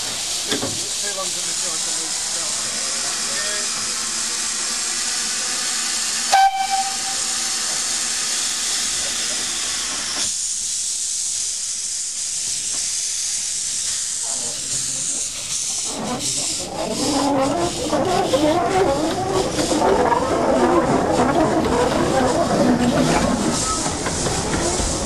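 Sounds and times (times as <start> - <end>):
steam locomotive hissing: 0.0 - 25.0
steam whistle toot: 6.3 - 7.8.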